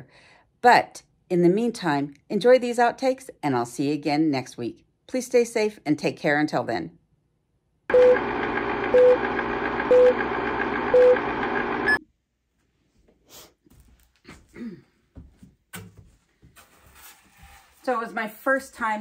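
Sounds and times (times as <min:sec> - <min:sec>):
countdown beeps: 0:10.9 - 0:11.2.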